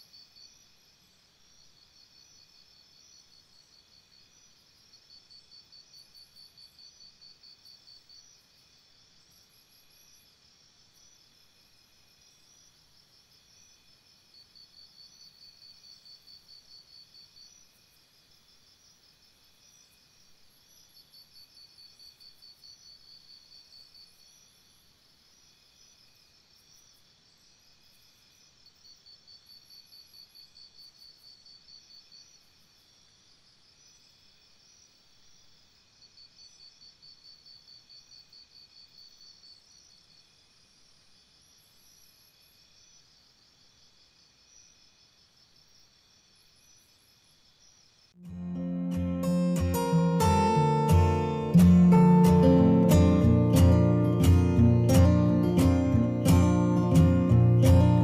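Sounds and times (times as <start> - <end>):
insect pulsed trill: 46.4 - 58.0.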